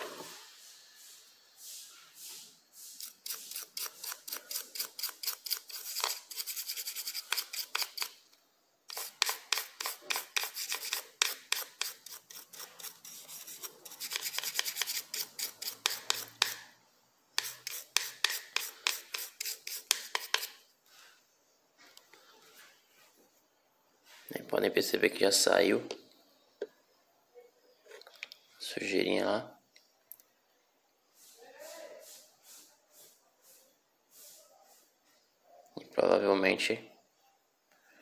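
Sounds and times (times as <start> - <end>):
toothbrush scrubbing: 2.8 - 8.1, 8.9 - 16.6, 17.4 - 20.6.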